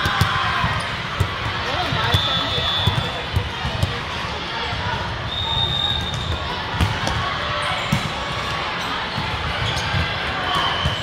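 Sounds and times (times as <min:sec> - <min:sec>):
spectators talking: 0:00.0 - 0:11.0.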